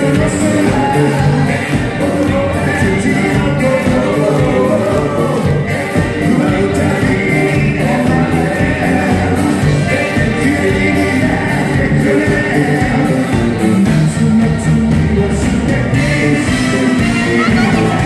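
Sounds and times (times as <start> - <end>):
bass guitar: 0.0 - 18.0
drums: 0.0 - 18.0
electric guitar: 0.0 - 18.0
people singing together: 0.0 - 18.0.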